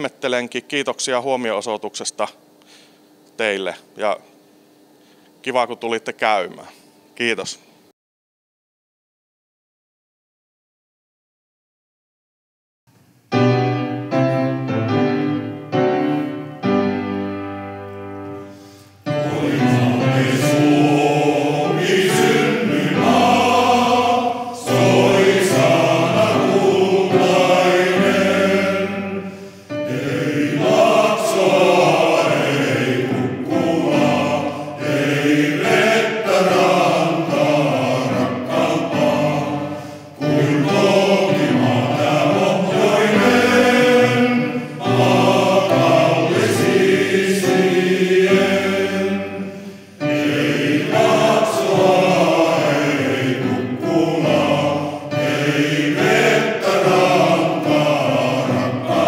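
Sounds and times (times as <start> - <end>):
upright piano chords: 13.3 - 59.0
male voice choir singing: 19.1 - 59.0.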